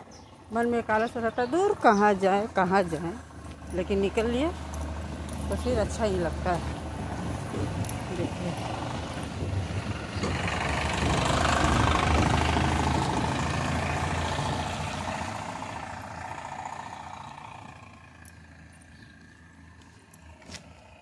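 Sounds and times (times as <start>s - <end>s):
small vehicle engine passing by: 0.1s - 21.0s.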